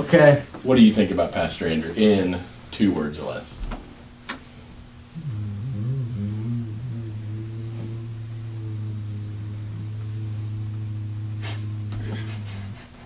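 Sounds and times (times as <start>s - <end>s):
boy humming low: 5.1s - 13.0s.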